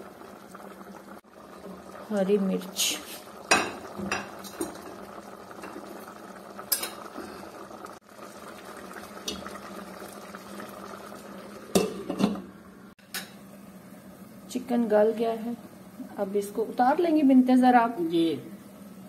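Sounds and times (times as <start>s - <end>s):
water boiling in a pot: 0.0s - 19.0s
pot lid clattering: 11.7s - 12.5s.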